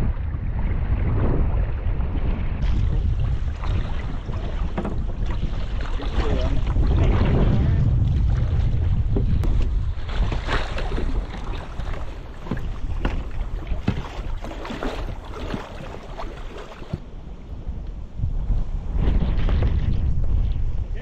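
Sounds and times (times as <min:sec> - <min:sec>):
wind rumbling on microphone: 0:00.0 - 0:21.0
small water splashes: 0:02.6 - 0:08.9, 0:09.7 - 0:17.0.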